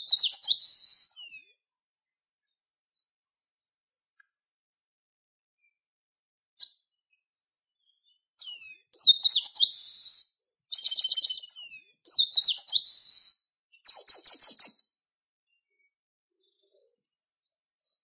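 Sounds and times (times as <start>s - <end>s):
bird singing high whistled notes: 0.0s - 2.5s, 7.8s - 15.0s.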